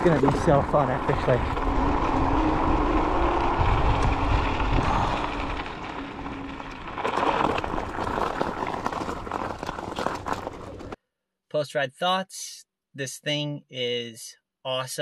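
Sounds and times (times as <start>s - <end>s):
electric scooter hum: 0.0s - 11.0s
tyres crunching over gravel: 0.0s - 11.0s
wind rumbling on microphone: 0.0s - 11.0s.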